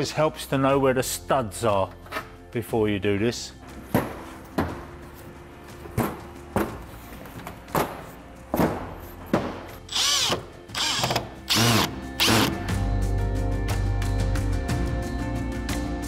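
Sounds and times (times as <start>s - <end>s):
cordless drill whirring: 9.9s - 12.6s.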